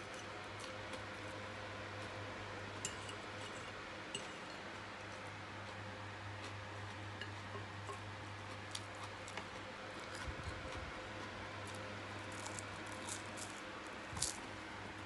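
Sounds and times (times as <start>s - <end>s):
steady low hum: 0.0s - 15.0s
croissant crackling: 11.6s - 14.5s.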